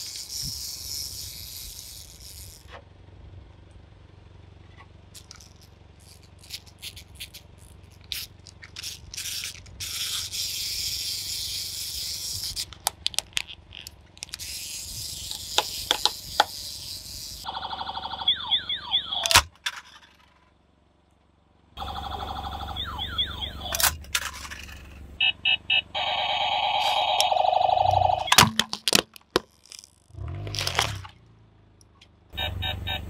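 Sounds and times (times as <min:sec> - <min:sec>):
plastic toys popping under tyre: 0:00.0 - 0:02.9, 0:04.8 - 0:17.5, 0:19.2 - 0:20.5, 0:26.8 - 0:32.2
electronic pulsing with chirps: 0:17.5 - 0:19.3, 0:21.8 - 0:23.8, 0:25.2 - 0:28.4.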